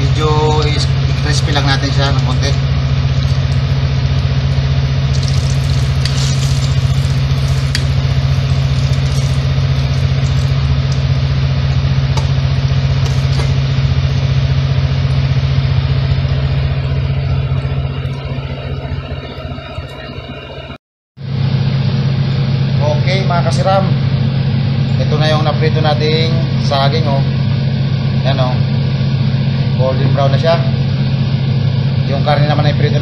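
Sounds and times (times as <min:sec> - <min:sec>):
low hum: 0:00.0 - 0:33.0
oil sizzling and bubbling: 0:01.1 - 0:18.2.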